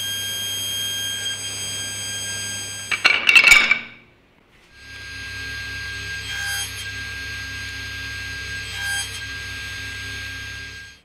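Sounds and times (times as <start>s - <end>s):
table saw whining: 0.0s - 3.2s, 4.7s - 11.0s.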